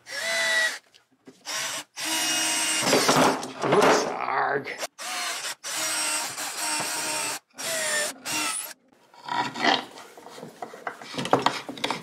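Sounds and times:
cordless drill driving screws: 0.1 - 0.8, 1.4 - 3.2, 4.8 - 8.8.

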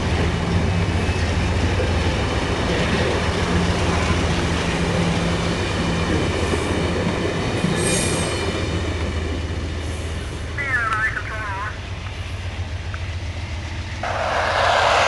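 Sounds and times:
train wheels rumbling on rails: 0.0 - 10.6, 11.8 - 15.0
low hum: 14.0 - 15.0.

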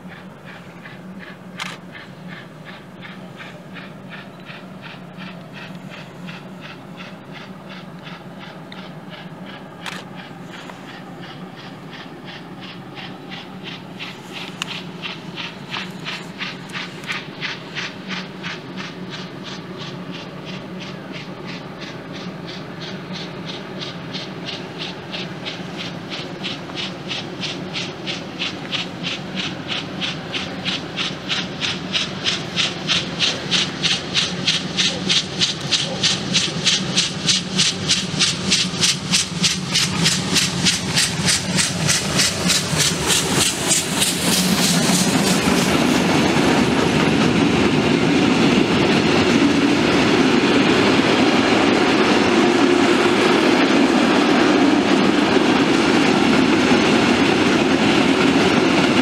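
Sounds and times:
low train rumble: 0.0 - 59.0
steam locomotive chuffing: 0.0 - 59.0.

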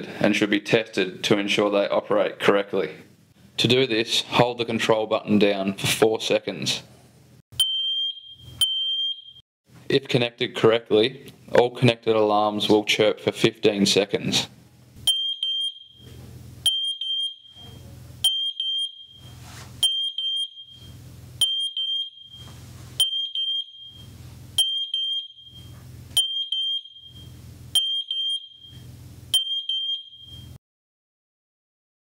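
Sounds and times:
smoke alarm beeps: 7.6 - 9.4, 15.0 - 30.6.

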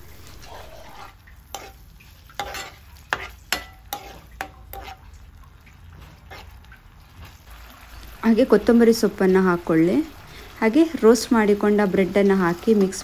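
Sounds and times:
sauce sizzling: 0.0 - 13.0
spoon clinking against pan: 2.4 - 5.0.

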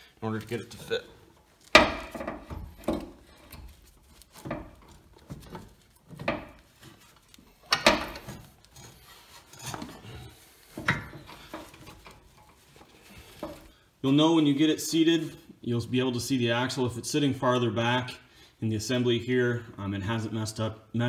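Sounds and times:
metal scraping and rubbing: 0.3 - 13.7
metal clunks: 1.7 - 3.7.

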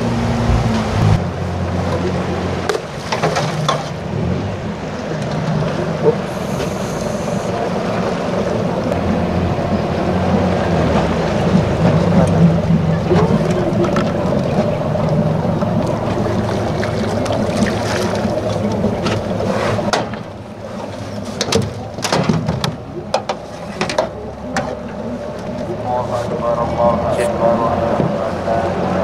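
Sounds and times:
boat motor running: 0.0 - 29.0
water and wind rushing: 0.0 - 29.0
lifebuoy splashing into water: 0.5 - 6.8, 10.2 - 25.2.

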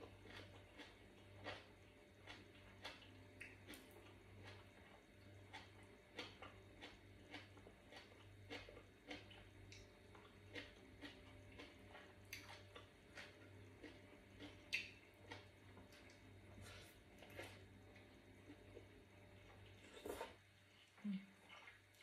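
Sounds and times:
low steady hum: 0.0 - 22.0
chewing mouth clicks and smacks: 0.3 - 16.2.

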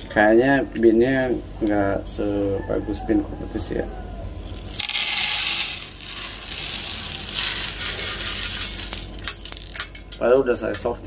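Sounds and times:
coffee beans pouring onto tray: 4.6 - 9.9.

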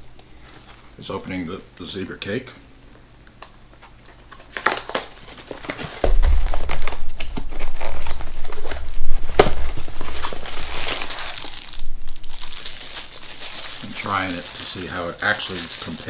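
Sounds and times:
plastic wrapper crinkling: 3.8 - 16.0.

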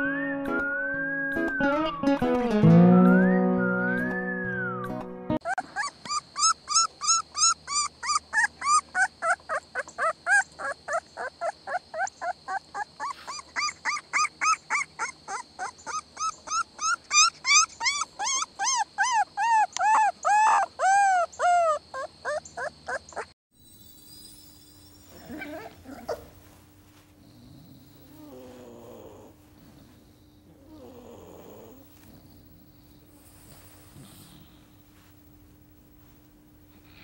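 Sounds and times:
puppy yipping: 5.4 - 23.4, 25.1 - 26.3.

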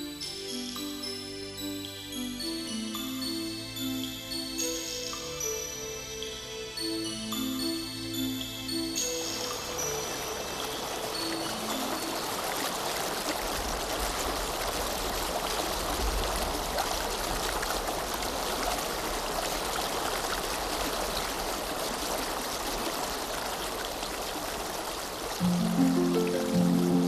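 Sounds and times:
water running over rocks: 7.6 - 27.0.

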